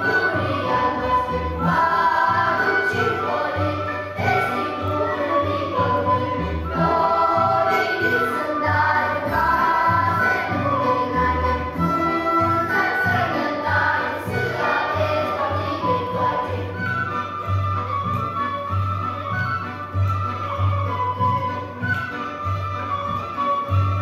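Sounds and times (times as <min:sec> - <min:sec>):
children's choir singing: 0:00.0 - 0:17.3
folk ensemble playing: 0:00.0 - 0:24.0.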